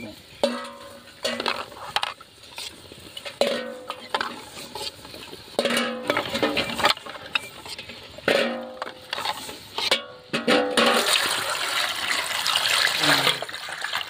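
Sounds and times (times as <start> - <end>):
steel ladle clanking on metal pot: 0.4 - 2.2, 3.2 - 4.8, 5.6 - 11.1.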